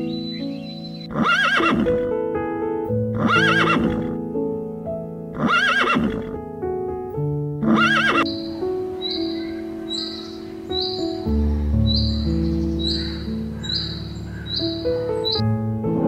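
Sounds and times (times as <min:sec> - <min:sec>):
piano background music: 0:00.0 - 0:16.0
horse whinnying: 0:01.1 - 0:02.0, 0:03.2 - 0:04.1, 0:05.4 - 0:06.3, 0:07.7 - 0:08.3.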